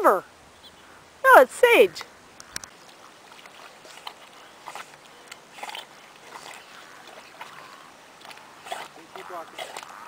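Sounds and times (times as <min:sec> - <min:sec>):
dogs swimming in water: 0:02.6 - 0:10.0.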